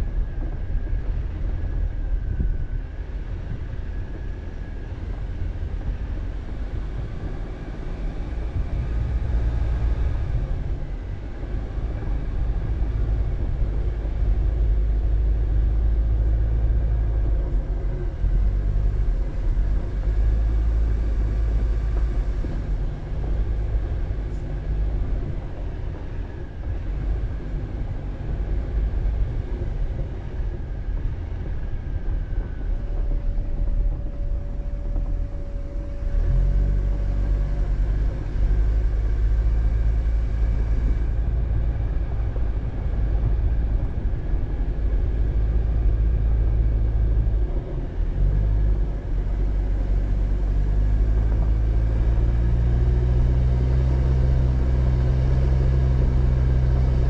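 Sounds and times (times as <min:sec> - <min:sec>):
car driving on a dirt road: 0:00.0 - 0:57.0.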